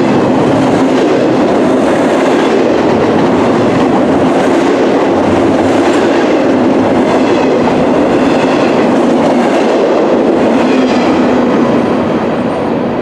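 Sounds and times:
freight train wheels on track: 0.0 - 13.0.

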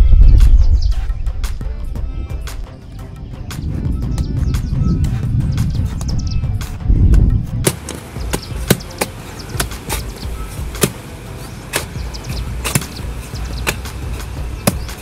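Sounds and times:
sharp knocks: 12.6 - 13.0.

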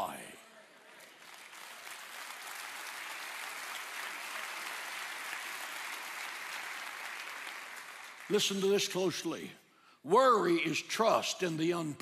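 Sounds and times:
crowd applauding: 0.8 - 9.0.

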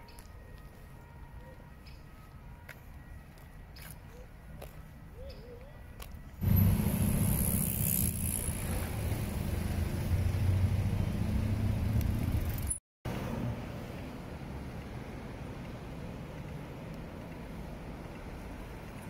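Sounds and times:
street traffic noise: 0.0 - 19.0
vehicle engine rumble: 6.2 - 19.0.

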